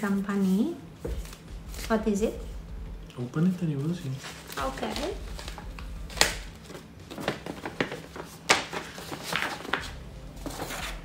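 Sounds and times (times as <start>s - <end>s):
paper and packaging rustling: 3.4s - 11.0s.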